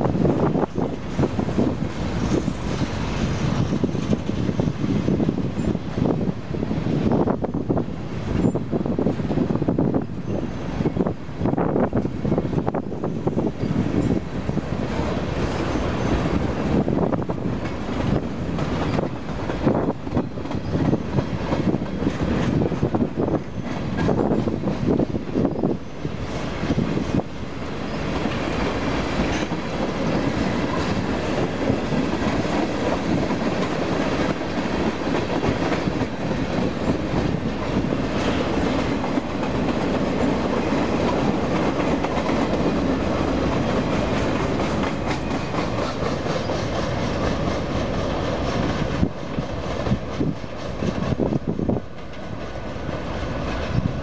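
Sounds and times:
freight train rumbling past: 0.0s - 54.0s
train wheel clicks: 17.2s - 25.1s, 27.7s - 53.8s.

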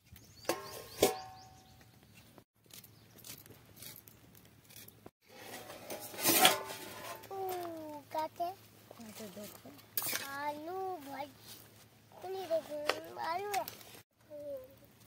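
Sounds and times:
metal lid clanking on pot: 0.4s - 1.5s, 5.4s - 7.3s.

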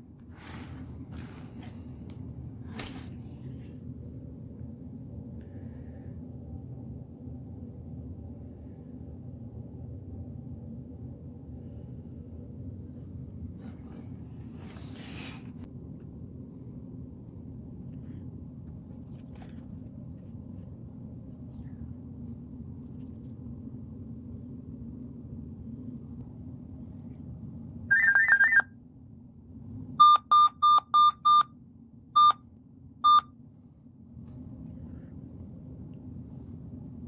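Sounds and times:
low steady hum: 0.0s - 37.0s
laptop error beeps: 27.9s - 28.7s, 30.0s - 31.4s, 32.2s - 32.4s, 33.0s - 33.2s.

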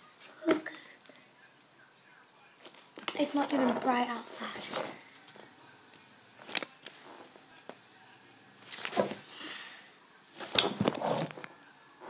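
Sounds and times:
paper rustling and crinkling: 8.7s - 9.2s, 10.4s - 11.6s.

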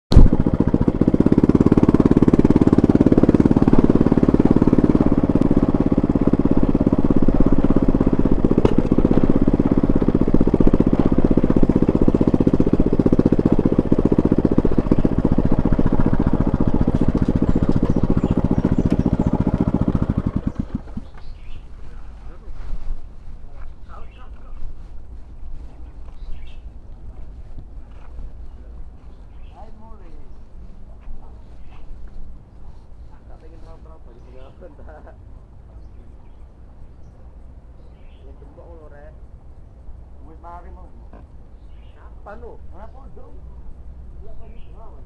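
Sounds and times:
motor scooter engine running: 0.1s - 21.6s.

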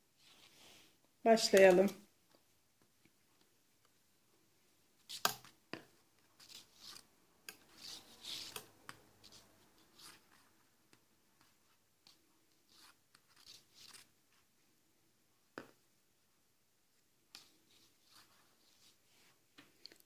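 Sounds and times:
knitted fabric rustling and scratching: 6.2s - 14.5s.

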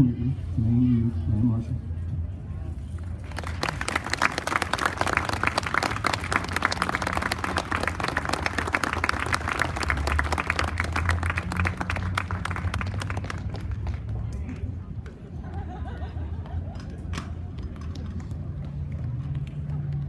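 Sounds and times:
crowd applauding: 3.2s - 14.2s.

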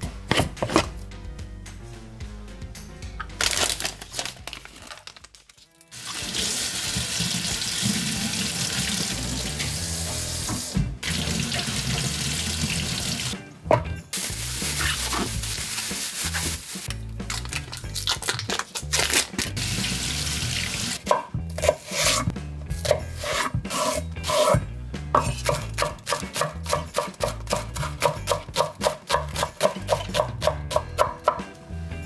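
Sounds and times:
background music: 0.0s - 32.0s
knife chopping on wooden board: 0.3s - 0.9s, 25.2s - 31.5s.

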